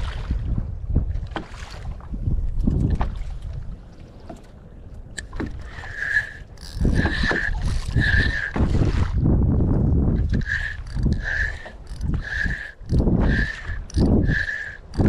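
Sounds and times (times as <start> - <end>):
wind rumble on microphone: 0.0 - 15.0
reel squeaking: 4.2 - 9.0, 10.2 - 15.0
fishing reel winding: 5.2 - 8.6, 10.3 - 15.0.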